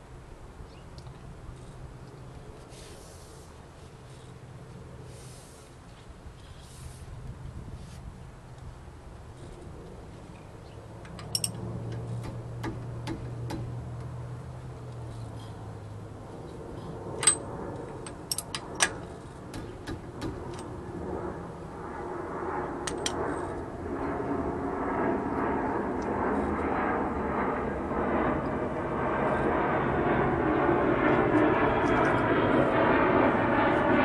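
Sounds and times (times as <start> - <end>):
engine rumble: 0.0 - 34.0
metallic clinks: 11.2 - 11.6.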